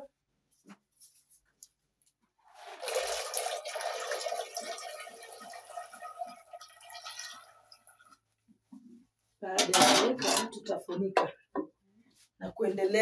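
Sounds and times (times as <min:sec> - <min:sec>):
beans pouring into a pot: 0:02.5 - 0:07.6.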